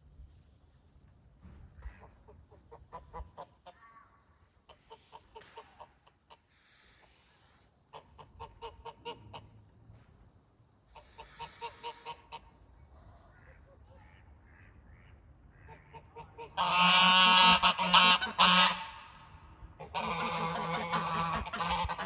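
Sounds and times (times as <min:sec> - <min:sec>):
goose hissing: 0:06.4 - 0:08.2, 0:11.0 - 0:12.4
goose calling: 0:11.0 - 0:12.5, 0:13.4 - 0:19.2, 0:19.8 - 0:22.0.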